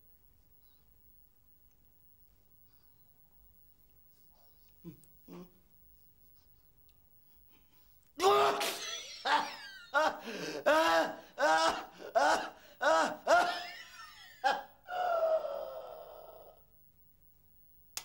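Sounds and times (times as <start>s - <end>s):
man groaning: 8.2s - 9.0s, 10.2s - 13.8s, 14.9s - 16.6s
man crying out in agony: 8.2s - 16.6s.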